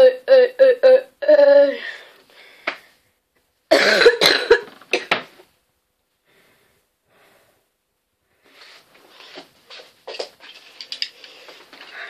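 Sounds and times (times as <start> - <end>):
boy coughing: 3.7 - 5.2.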